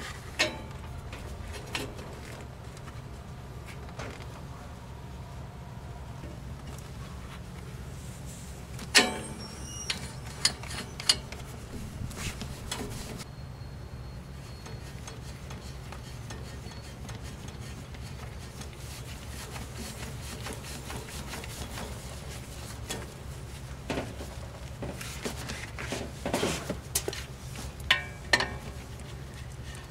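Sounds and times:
glove scraping metal fitting: 0:08.8 - 0:13.2, 0:14.5 - 0:23.2.

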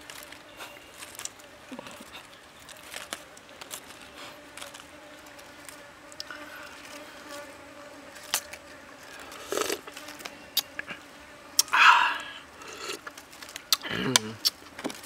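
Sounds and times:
flying insect buzzing: 0:02.9 - 0:13.0.

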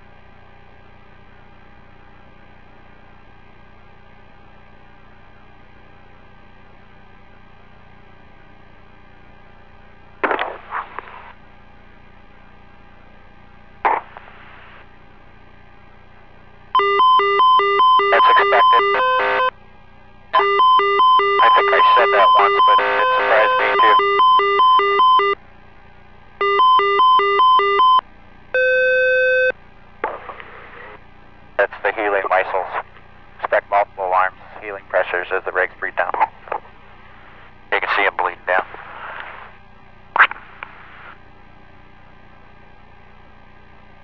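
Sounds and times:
bursts of noise: 0:10.2 - 0:11.3, 0:13.8 - 0:14.8, 0:20.4 - 0:25.4, 0:40.1 - 0:41.2
rapid electronic beeps: 0:16.8 - 0:19.5, 0:20.4 - 0:25.4, 0:26.4 - 0:28.0, 0:28.6 - 0:29.5.

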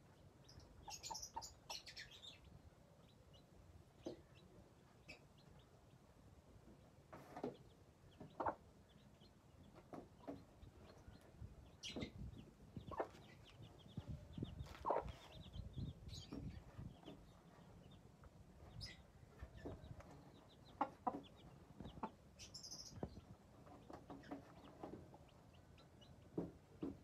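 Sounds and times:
chicks cheeping: 0:00.0 - 0:27.0
hen clucking: 0:00.4 - 0:02.4, 0:07.2 - 0:18.0, 0:18.7 - 0:26.9.

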